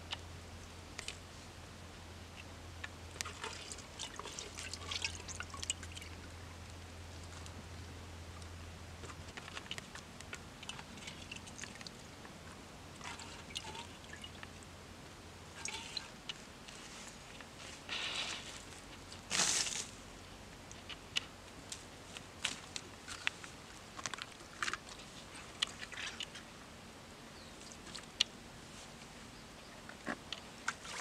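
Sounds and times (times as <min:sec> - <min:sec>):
small water splashes and drips: 0:03.2 - 0:06.2, 0:10.6 - 0:12.0, 0:13.0 - 0:14.6, 0:15.6 - 0:16.4, 0:30.6 - 0:31.0.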